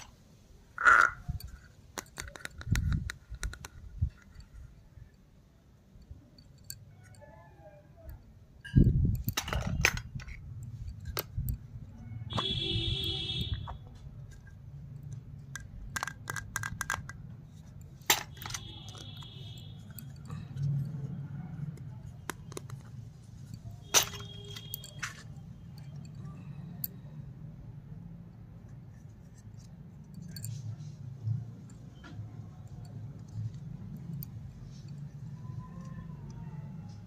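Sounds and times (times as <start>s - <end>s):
plastic toy pieces clicking: 0.8s - 4.4s, 14.3s - 19.2s, 21.8s - 25.3s.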